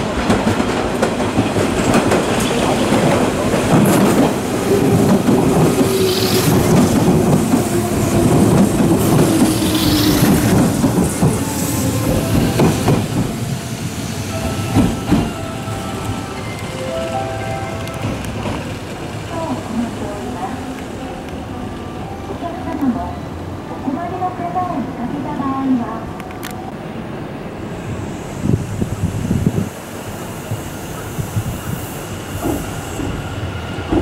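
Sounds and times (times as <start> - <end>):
electric train whine: 0.0 - 24.0
train wheels clacking over joints: 0.1 - 13.6, 14.4 - 15.7.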